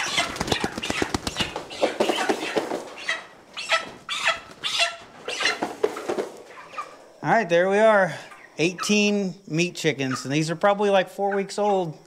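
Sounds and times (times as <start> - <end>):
chickens flapping wings: 0.0 - 2.9, 4.3 - 4.8
chickens squawking: 0.0 - 7.2, 9.9 - 10.5.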